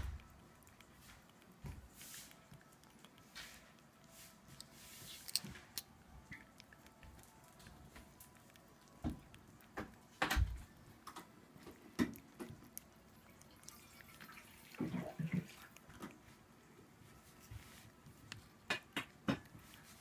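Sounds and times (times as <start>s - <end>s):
cat licking wetly: 0.0s - 20.0s.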